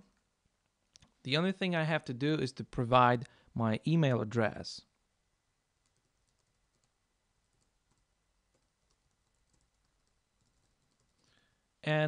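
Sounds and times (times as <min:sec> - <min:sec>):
faint typing on a keyboard: 0:05.8 - 0:11.6.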